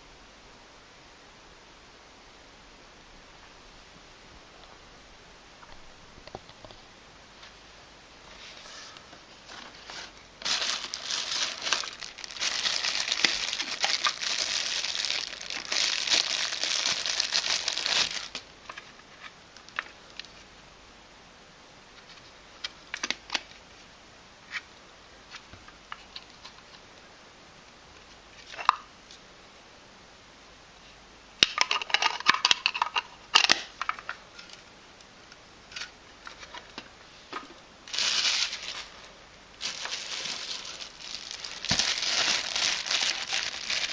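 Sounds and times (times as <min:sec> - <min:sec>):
plastic wrap crinkling: 0:09.5 - 0:18.8, 0:37.9 - 0:43.9.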